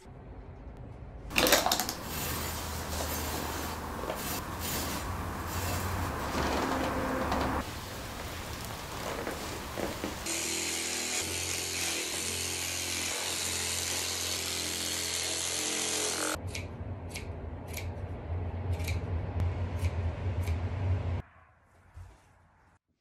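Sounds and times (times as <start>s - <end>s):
electric carving tool humming: 10.2s - 16.4s.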